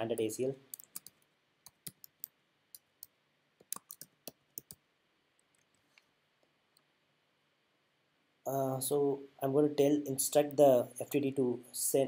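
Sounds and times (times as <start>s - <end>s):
keyboard typing clicks: 0.1s - 2.3s, 3.0s - 4.8s.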